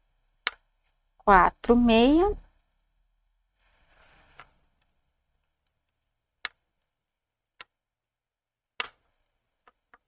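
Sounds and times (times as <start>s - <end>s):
knitting needles clicking: 0.4s - 0.9s, 4.8s - 6.9s, 7.5s - 7.8s.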